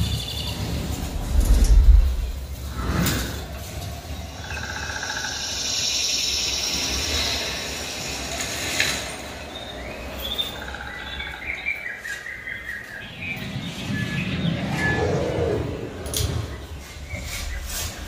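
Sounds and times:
insects chirping: 0.0 - 11.6
birds chirping: 0.0 - 18.0
low rumble: 0.6 - 3.6.

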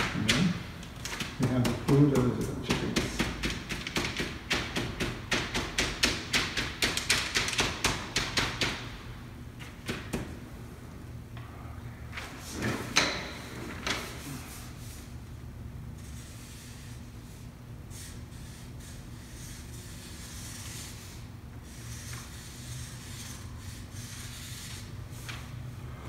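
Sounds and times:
marker tapping on paper: 1.0 - 8.8.

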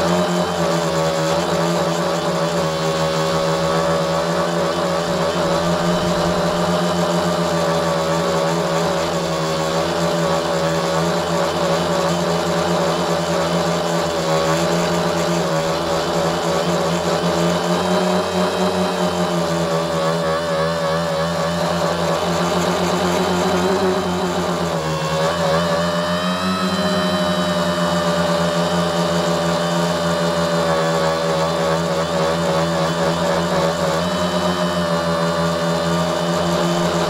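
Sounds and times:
drone motors and propellers: 0.0 - 37.0.

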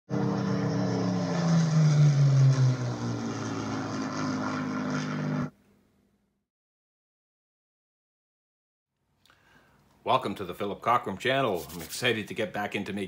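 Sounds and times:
propeller aircraft engine droning: 0.1 - 5.6.

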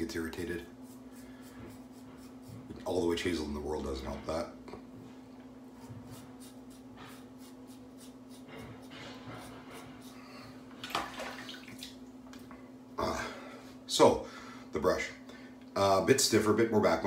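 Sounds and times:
steady low hum: 0.0 - 17.0
razor scraping stubble: 5.8 - 10.2
water splashing: 10.8 - 12.0.

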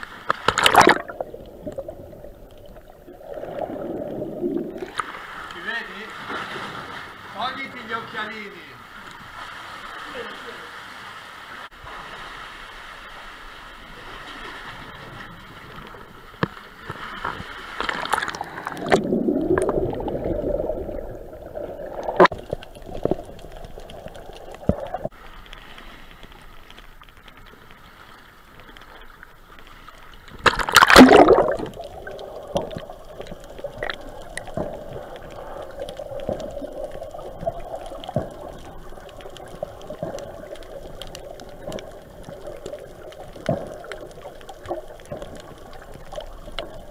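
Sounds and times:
water sloshing and gurgling: 0.0 - 46.9
loud splash: 0.4 - 1.2, 30.4 - 31.8.

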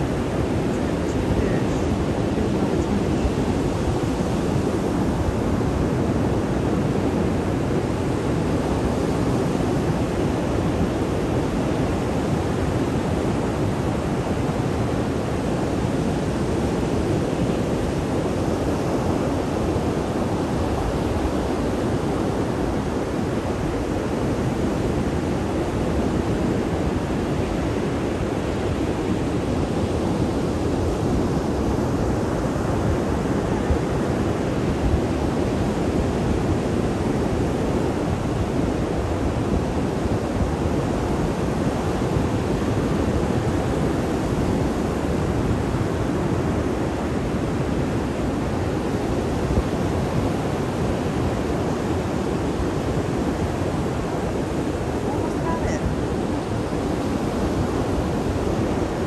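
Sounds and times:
wind buffeting microphone: 0.0 - 59.0
ocean surf breaking: 49.2 - 59.0.

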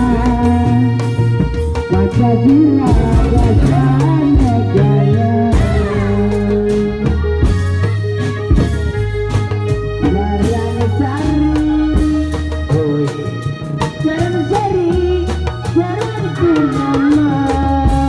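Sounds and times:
drum strikes: 0.0 - 18.0
low bass line: 0.0 - 18.0.

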